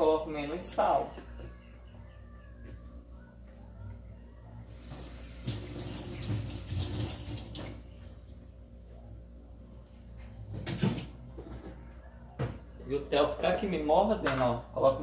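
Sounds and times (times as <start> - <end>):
tap water running into sink: 4.9 - 7.8.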